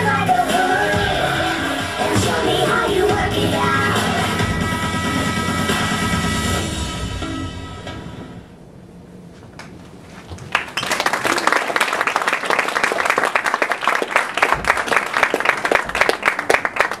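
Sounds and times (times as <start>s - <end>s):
dance music: 0.0s - 7.6s
audience applause: 10.5s - 17.0s.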